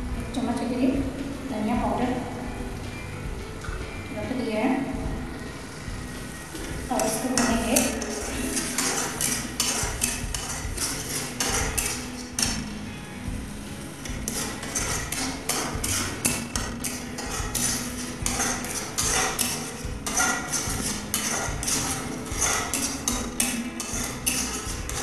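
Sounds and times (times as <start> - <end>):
spatula scraping metal pan: 6.6 - 12.7, 14.0 - 25.0.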